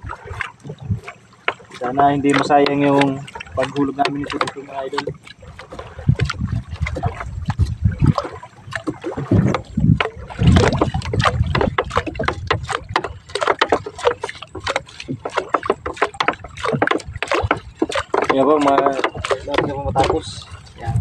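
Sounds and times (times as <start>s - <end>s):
net clicking and knocking on hull: 0.0s - 21.0s
low rumble: 5.4s - 13.0s.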